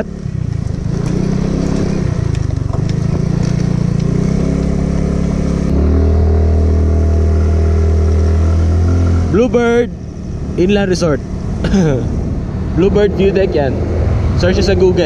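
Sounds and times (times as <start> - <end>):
scooter engine pulling away: 0.0 - 9.4.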